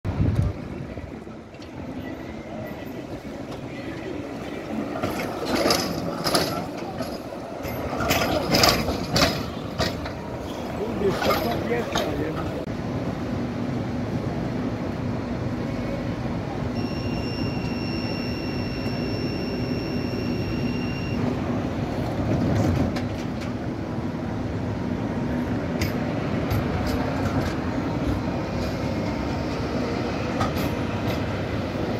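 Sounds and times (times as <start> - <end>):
tram rumbling past: 0.1 - 31.9
steady high tone: 16.7 - 21.2.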